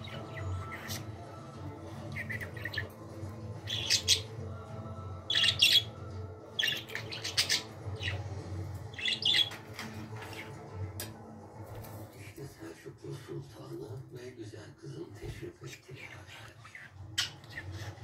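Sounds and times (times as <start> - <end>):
budgerigar chirping and squawking: 2.1 - 3.0, 3.6 - 4.3, 5.3 - 5.9, 6.6 - 8.3, 8.9 - 9.6, 15.8 - 18.0.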